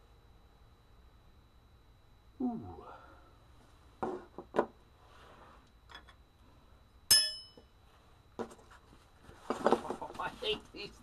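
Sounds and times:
sharp ringing metal clink: 7.1s - 7.7s.

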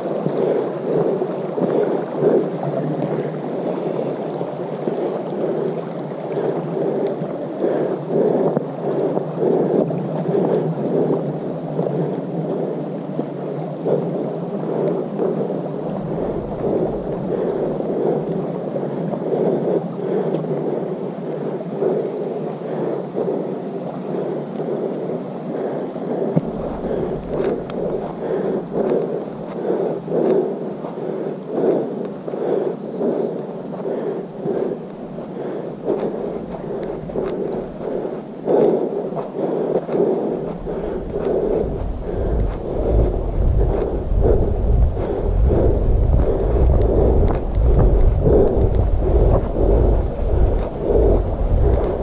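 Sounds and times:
constant rumble: 4.2s - 22.1s, 25.6s - 52.0s
muffled footsteps on dirt trail: 26.4s - 30.4s, 33.9s - 52.0s.

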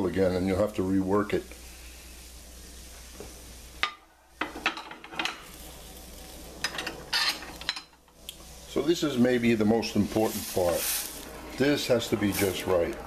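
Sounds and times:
sauce simmering in a skillet: 0.4s - 3.8s, 5.4s - 6.7s
metal utensils scraping a pan: 6.6s - 8.0s.

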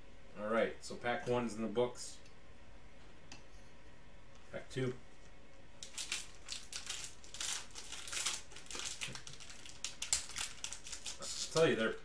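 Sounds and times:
foil wrapper crinkling: 5.8s - 12.0s.

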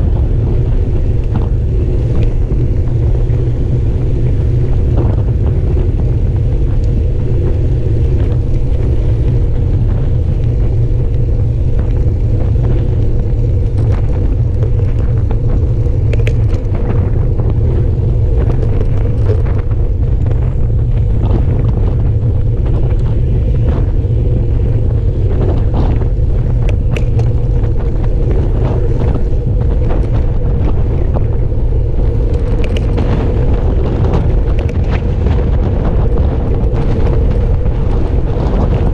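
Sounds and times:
tyre and road noise: 0.0s - 38.9s
wind buffeting microphone: 0.0s - 38.9s
faint clicks: 13.6s - 17.0s.

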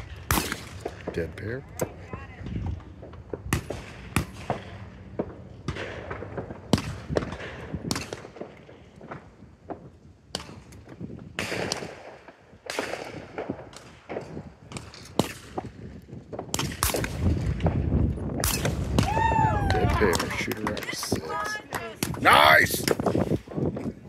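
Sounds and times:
shotgun shots with echo: 0.2s - 1.3s, 11.4s - 15.7s, 16.5s - 17.5s, 18.4s - 19.0s.

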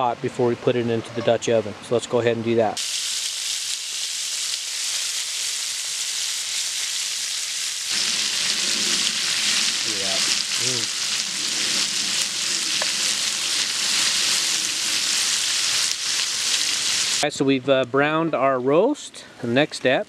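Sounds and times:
meat sizzling in grease: 2.8s - 17.2s.

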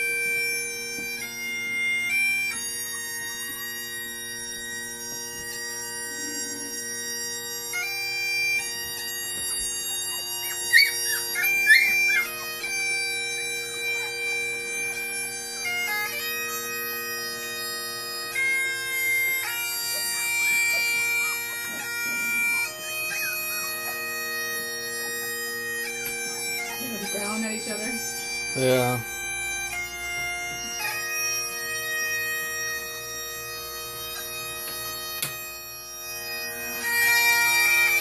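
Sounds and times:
bagpipe music with drones: 0.0s - 38.0s.

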